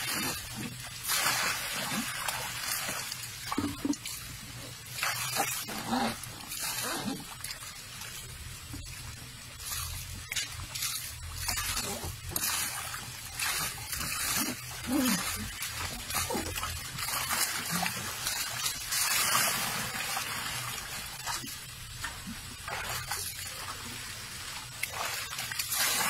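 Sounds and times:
elephant splashing water: 0.0s - 4.2s, 9.6s - 21.5s
water poured from bucket: 0.0s - 4.3s, 9.6s - 23.7s, 24.7s - 26.0s.

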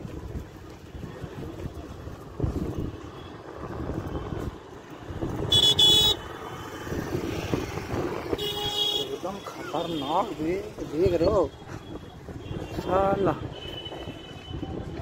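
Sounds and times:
scooter horn beeping: 5.4s - 6.3s, 8.4s - 9.1s.

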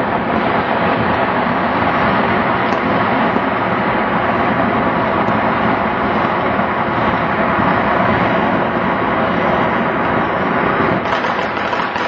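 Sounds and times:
fireworks and firecrackers din: 10.8s - 12.0s.

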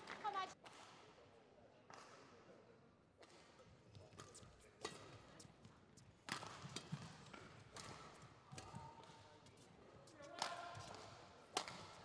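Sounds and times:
rackets hitting shuttlecock: 6.3s - 9.1s, 10.3s - 12.0s.

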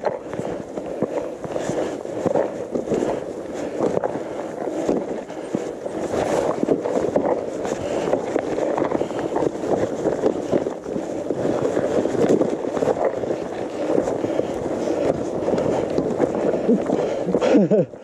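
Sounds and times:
bike tyres crunching over stones: 0.0s - 18.0s.

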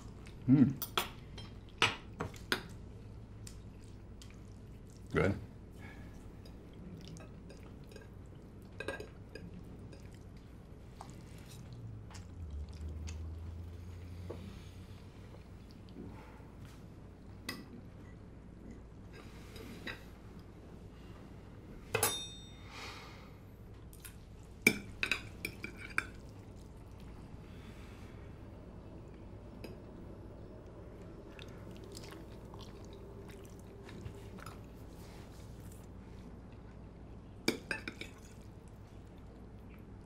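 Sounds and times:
quiet chewing: 1.5s - 5.2s, 5.8s - 16.8s, 23.7s - 28.0s, 29.0s - 40.0s
forks clinking on plates: 22.0s - 22.6s.

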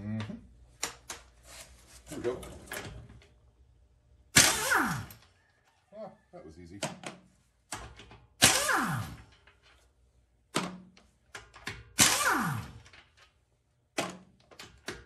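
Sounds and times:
pneumatic impact wrench hammering: 4.3s - 5.2s, 7.7s - 9.8s, 10.5s - 13.2s.

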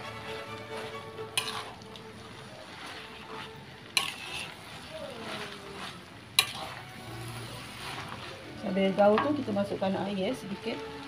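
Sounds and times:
noodles sizzling in a wok: 0.0s - 11.0s
spatula clanking against wok: 1.4s - 1.7s, 4.0s - 4.5s, 6.4s - 6.8s.

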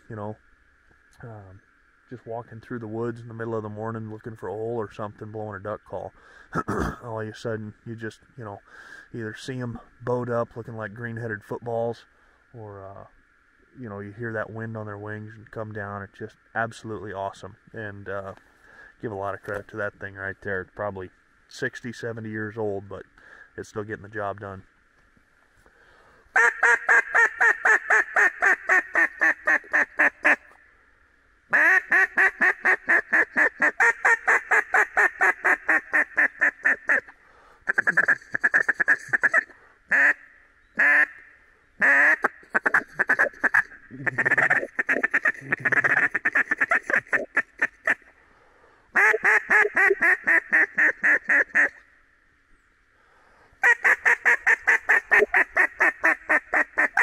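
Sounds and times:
duck call quacking: 26.4s - 30.4s, 31.5s - 37.1s, 37.7s - 40.2s, 40.8s - 41.2s, 41.8s - 48.0s, 49.0s - 51.8s, 53.6s - 57.0s.

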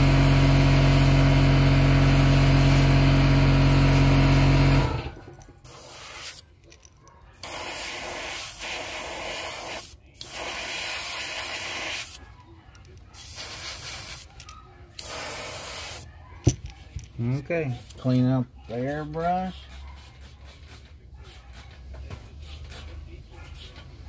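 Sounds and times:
airbrush spraying hiss: 5.7s - 6.4s.

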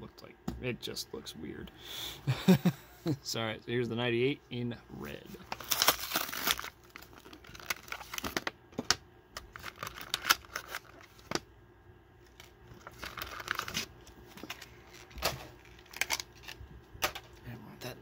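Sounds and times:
plastic packaging crinkling: 5.4s - 11.4s, 12.2s - 16.6s.

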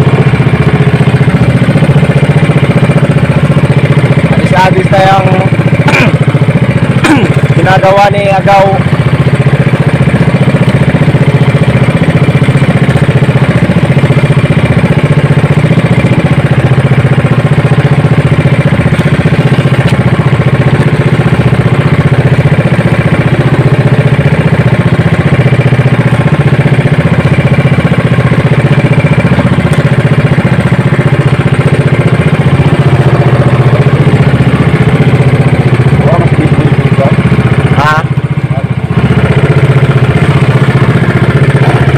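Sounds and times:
boat engine running: 0.0s - 41.9s.

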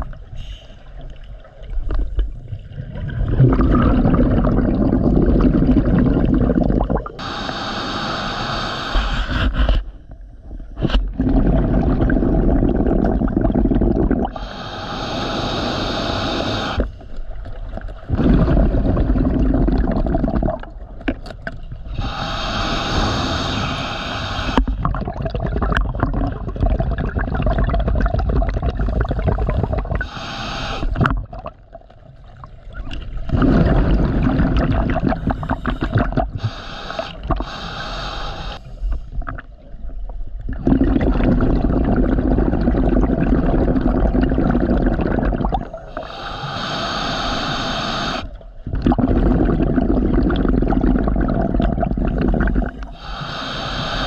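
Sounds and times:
diver breathing through regulator: 7.2s - 9.9s, 14.3s - 17.1s, 21.9s - 24.8s, 29.0s - 31.0s, 35.0s - 39.1s, 45.9s - 48.4s, 52.1s - 54.0s.

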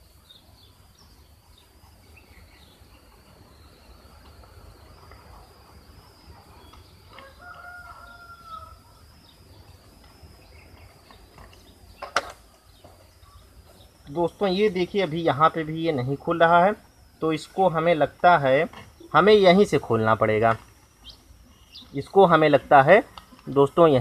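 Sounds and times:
faint high whine: 0.0s - 24.0s
rooster crowing: 7.0s - 9.4s.

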